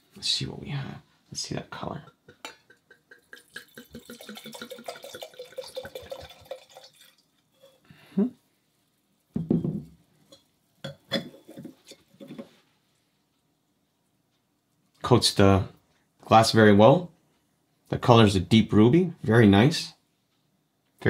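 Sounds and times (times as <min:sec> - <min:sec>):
wine pouring into a glass: 0:02.9 - 0:07.8
bottle and glass knocking on wood: 0:09.4 - 0:10.0.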